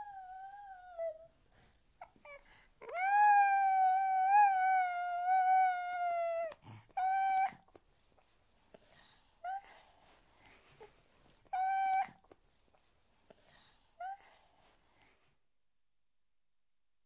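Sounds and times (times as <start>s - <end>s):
baby singing: 0.0s - 1.3s, 2.0s - 7.7s, 11.5s - 12.3s.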